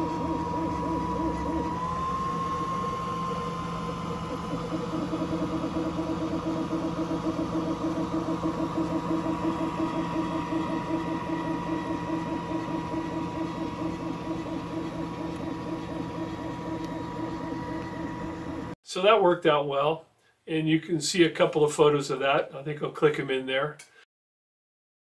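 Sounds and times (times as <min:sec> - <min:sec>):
laser engraver motor whine: 0:00.0 - 0:18.8
rapid regular pulsing: 0:00.0 - 0:18.8.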